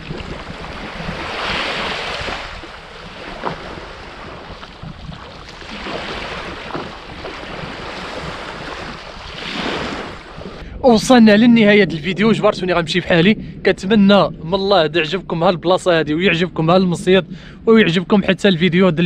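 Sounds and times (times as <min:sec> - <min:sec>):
sea waves breaking: 0:00.0 - 0:11.8
wind rumbling on microphone: 0:00.0 - 0:19.0.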